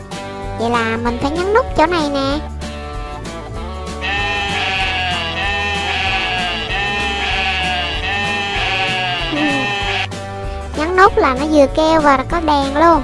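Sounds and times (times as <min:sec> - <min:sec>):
electronic toy sheep bleat: 0:04.0 - 0:10.2.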